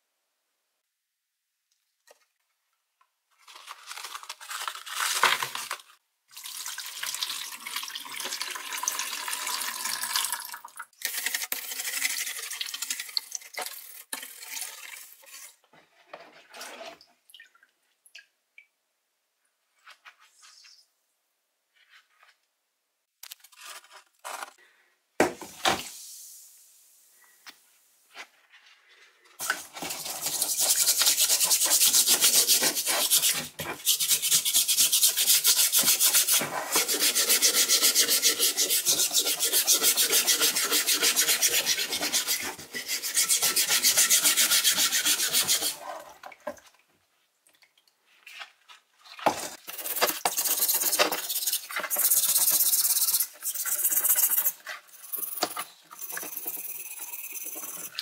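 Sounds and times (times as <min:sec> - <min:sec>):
abrasive scrubbing metal wrench: 0:49.7 - 0:58.0.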